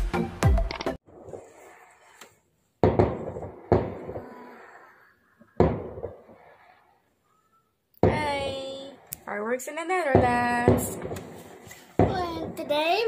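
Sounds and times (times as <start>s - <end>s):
fireworks rumble: 1.0s - 13.0s
muffled fireworks bangs: 2.8s - 13.0s.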